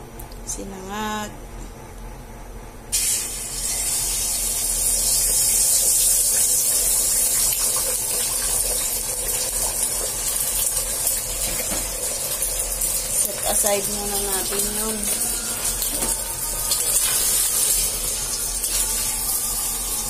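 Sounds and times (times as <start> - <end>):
eggs sizzling in hot oil: 2.9 - 20.0.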